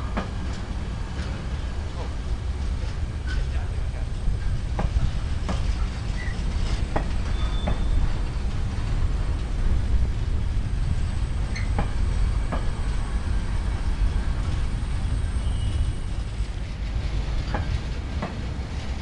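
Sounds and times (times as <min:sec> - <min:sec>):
freight train wagons rolling: 0:00.0 - 0:19.0.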